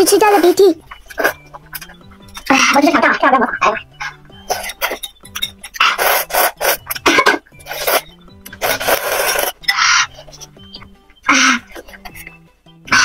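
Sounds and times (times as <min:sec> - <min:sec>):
person slurping noodles: 0:05.8 - 0:10.3.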